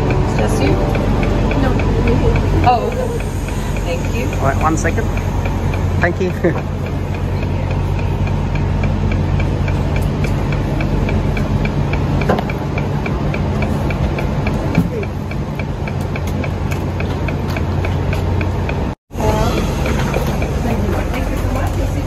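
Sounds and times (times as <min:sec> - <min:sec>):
fast regular ticking: 0:00.0 - 0:19.0
train low hum: 0:00.0 - 0:22.0.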